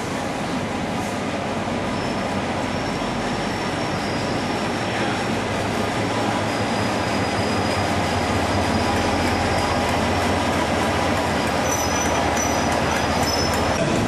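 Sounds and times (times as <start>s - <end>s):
diesel locomotive engine rumble: 0.0s - 14.0s
faint high wheel squeal: 1.8s - 5.2s, 6.1s - 10.0s, 11.4s - 13.8s.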